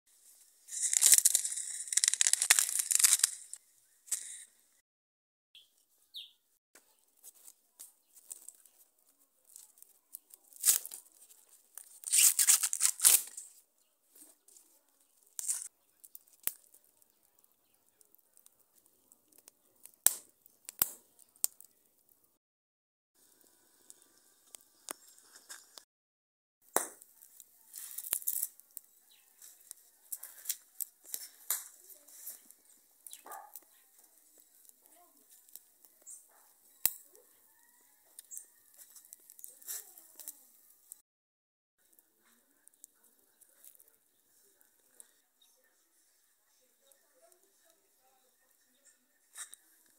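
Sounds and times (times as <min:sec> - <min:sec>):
corn husks tearing and rustling: 0:00.2 - 0:04.4, 0:07.2 - 0:21.8, 0:27.0 - 0:41.0, 0:42.3 - 0:44.0
wood fire crackling and popping: 0:00.2 - 0:04.4, 0:07.2 - 0:22.3, 0:23.2 - 0:25.8, 0:26.6 - 0:41.0, 0:41.9 - 0:44.0.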